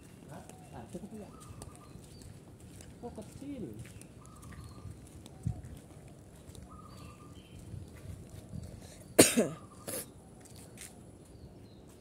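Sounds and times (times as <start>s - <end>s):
person coughing: 9.2s - 10.1s.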